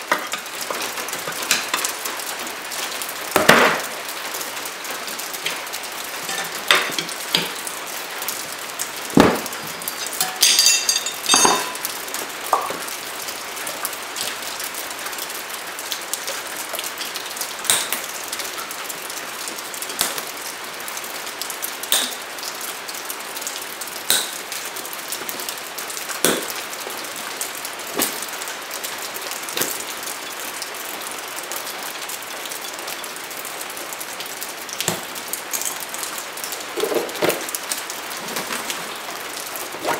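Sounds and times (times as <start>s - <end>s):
tire irons knocking and clinking: 6.2s - 7.6s, 9.1s - 12.9s
ringing metallic clink: 10.0s - 11.9s.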